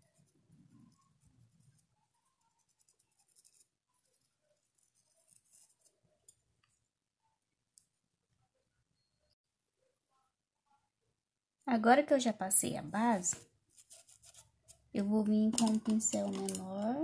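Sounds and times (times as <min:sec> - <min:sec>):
paintbrush scratching on fabric: 0:00.0 - 0:06.0, 0:13.7 - 0:14.8.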